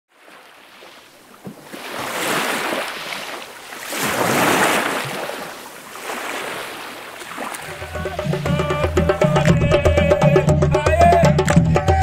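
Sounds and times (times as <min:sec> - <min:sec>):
small waves breaking on beach: 0:00.1 - 0:07.9.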